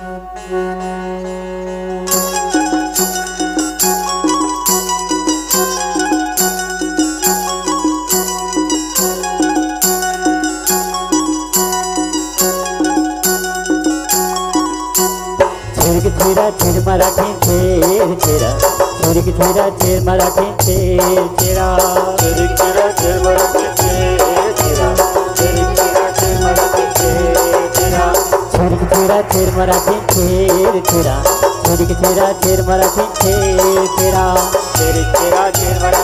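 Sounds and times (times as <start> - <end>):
devotional folk music: 0.0 - 36.0
wavering melody: 0.0 - 36.0
rattling percussion: 2.1 - 36.0
fast steady drum beat: 15.4 - 36.0.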